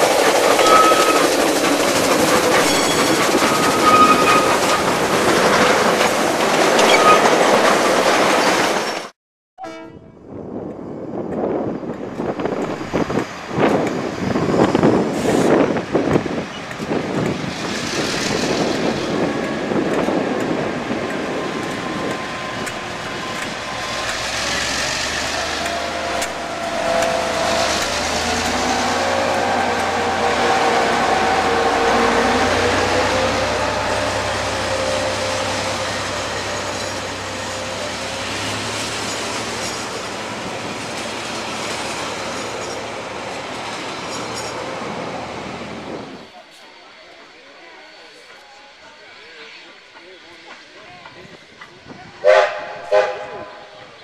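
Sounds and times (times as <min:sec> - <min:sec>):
diesel locomotive engine: 0:00.0 - 0:09.1, 0:09.7 - 0:54.0
train wheels rolling: 0:00.0 - 0:09.1, 0:10.6 - 0:52.3
wavering wheel squeal: 0:00.4 - 0:05.6, 0:06.8 - 0:07.3, 0:21.4 - 0:38.4.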